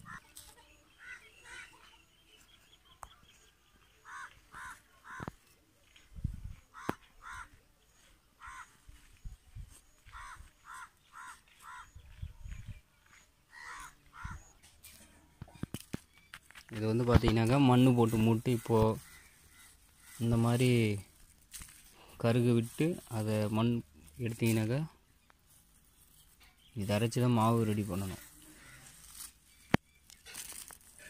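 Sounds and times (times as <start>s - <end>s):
crow cawing: 4.0s - 5.4s, 6.7s - 7.6s, 8.4s - 8.8s, 10.1s - 12.0s, 13.5s - 14.5s, 19.0s - 20.3s, 28.2s - 29.3s
stick digging in soil: 28.6s - 31.0s.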